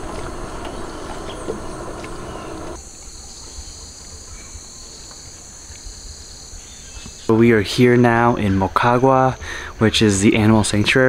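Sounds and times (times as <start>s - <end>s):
boat noise: 0.0s - 4.3s
insect chorus high-pitched hum: 0.0s - 11.0s.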